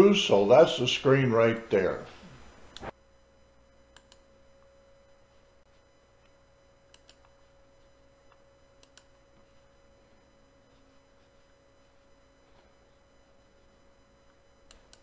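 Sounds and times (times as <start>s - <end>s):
faint steady hum: 0.0s - 15.0s
computer mouse clicks: 3.9s - 4.3s, 6.9s - 7.4s, 8.3s - 9.1s, 14.6s - 15.0s.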